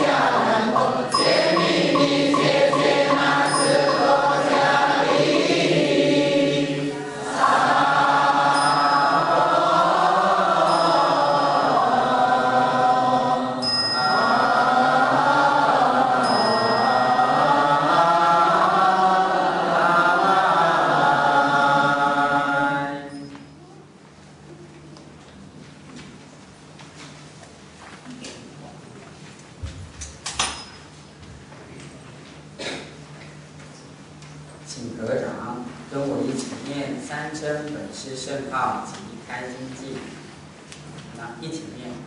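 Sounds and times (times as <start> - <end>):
melodic group chanting: 0.0 - 23.3
high ringing tone: 0.7 - 5.7, 7.4 - 12.8, 13.5 - 15.2, 16.1 - 17.9, 23.0 - 23.7.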